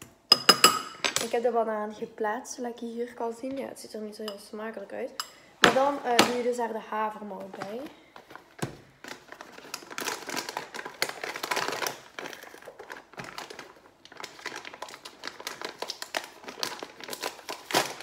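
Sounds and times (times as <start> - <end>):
packaging crinkling and rustling: 7.3 - 18.0.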